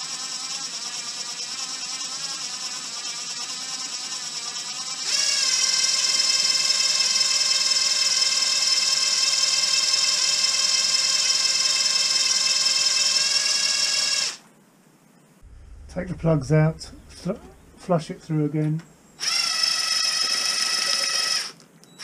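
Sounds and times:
cordless drill whining: 0:00.0 - 0:14.4, 0:19.2 - 0:22.0.

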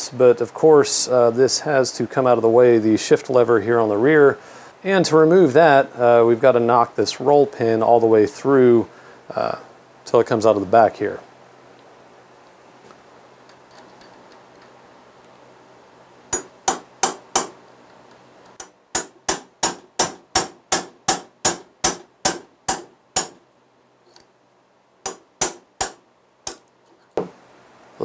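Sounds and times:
hammer tapping metal punch: 0:16.3 - 0:17.6, 0:18.5 - 0:23.4.

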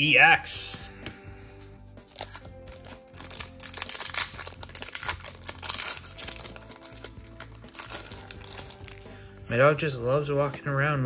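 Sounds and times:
background music: 0:00.0 - 0:11.0
foil wrapper crinkling and tearing: 0:02.1 - 0:09.1.

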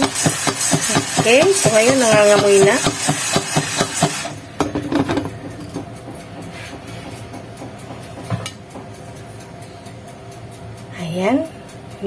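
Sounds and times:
kernels knocking in pot: 0:00.0 - 0:08.9.

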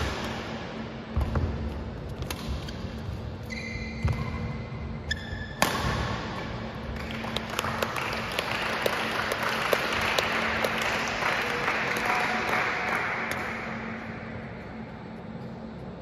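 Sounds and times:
spectators clapping: 0:06.9 - 0:13.8.

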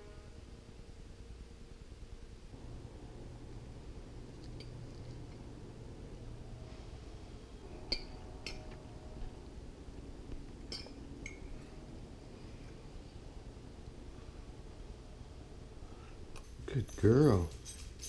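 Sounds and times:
faint low hum: 0:00.0 - 0:18.0
fork clinking on plate: 0:07.8 - 0:08.8, 0:10.6 - 0:11.6.

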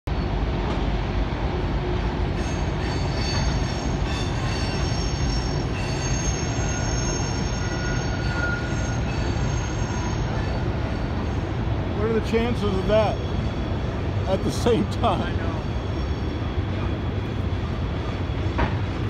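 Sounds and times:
freight train rumbling: 0:00.1 - 0:19.0
steel wheel flange squeal: 0:02.4 - 0:11.5, 0:15.4 - 0:19.0.

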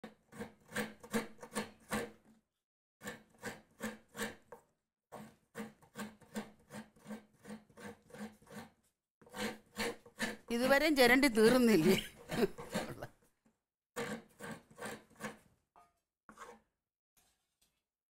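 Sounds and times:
coconut scraping rasps: 0:05.1 - 0:10.8, 0:11.4 - 0:13.1.

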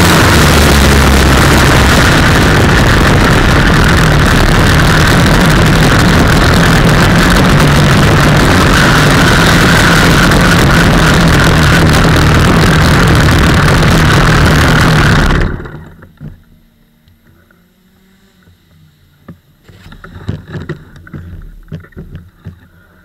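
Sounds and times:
kart engine running: 0:00.0 - 0:23.0
knocks and rattles on kart frame: 0:03.9 - 0:16.6, 0:19.2 - 0:22.9.

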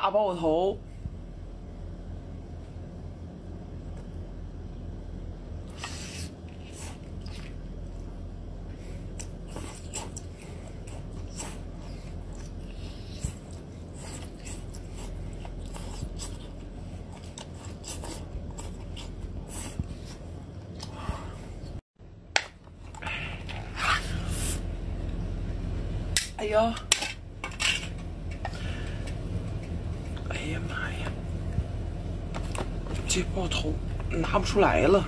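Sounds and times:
steady low hum: 0:00.0 - 0:35.0
wet chewing and slurping: 0:05.6 - 0:08.2, 0:08.8 - 0:21.7.

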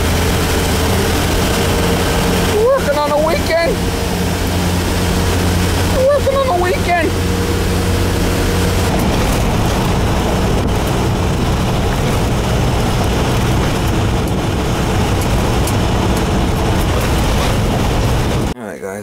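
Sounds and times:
car engine hum: 0:00.0 - 0:18.6
road noise: 0:00.0 - 0:18.6
wind rushing past window: 0:07.1 - 0:18.6.

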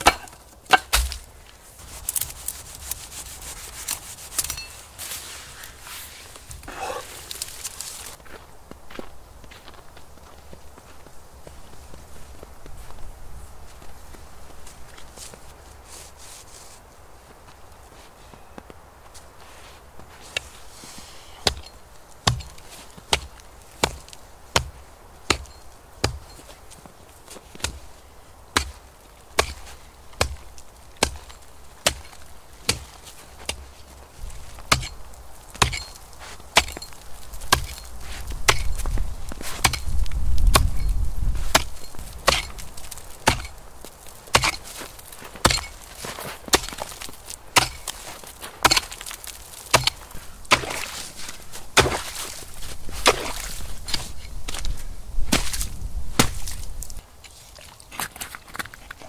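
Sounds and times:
axe chopping wood: 0:00.0 - 0:01.3, 0:21.4 - 0:26.4, 0:28.6 - 0:28.8, 0:29.4 - 0:33.6, 0:34.7 - 0:35.0, 0:35.6 - 0:36.0, 0:36.6 - 0:36.9, 0:37.5 - 0:37.9, 0:38.5 - 0:38.8, 0:39.6 - 0:40.9, 0:41.5 - 0:43.6, 0:44.2 - 0:51.1, 0:51.8 - 0:52.4, 0:53.0 - 0:54.1, 0:55.3 - 0:56.6.

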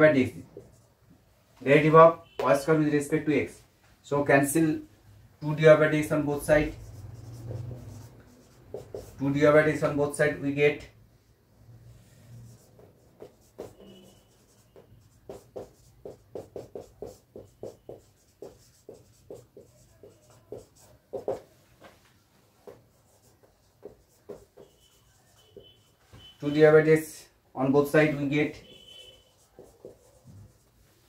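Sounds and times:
marker writing on whiteboard: 0:00.3 - 0:01.1, 0:05.5 - 0:10.4, 0:12.0 - 0:27.1, 0:28.0 - 0:31.0.

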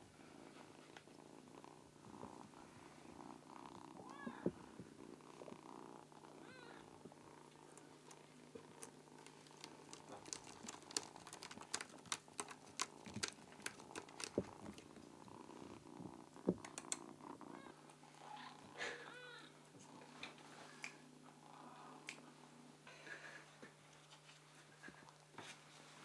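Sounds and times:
kitten chirping cries: 0:04.0 - 0:04.5
kitten claws scratching sisal: 0:09.2 - 0:14.9.

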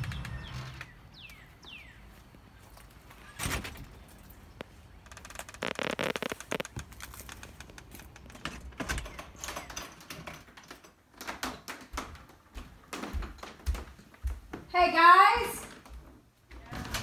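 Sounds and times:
storm door opening: 0:00.0 - 0:01.2, 0:03.2 - 0:04.1, 0:05.0 - 0:13.7, 0:16.6 - 0:17.0
footsteps coming inside: 0:00.0 - 0:17.0.

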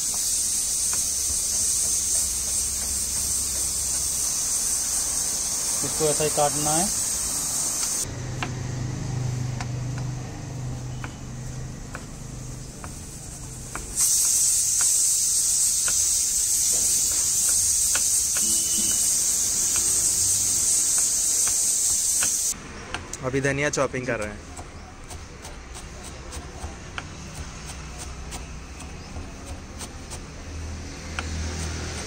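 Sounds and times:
loud high hiss: 0:00.0 - 0:08.0, 0:12.4 - 0:22.6
knife chopping on wooden board: 0:00.8 - 0:04.5, 0:07.8 - 0:08.7, 0:09.5 - 0:10.2, 0:10.9 - 0:15.0, 0:16.7 - 0:20.0, 0:24.1 - 0:32.0.

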